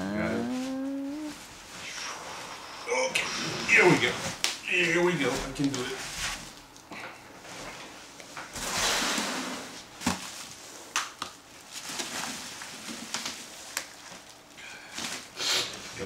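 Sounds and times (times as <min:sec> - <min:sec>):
bubble wrap rustling and crinkling: 0:08.5 - 0:16.0.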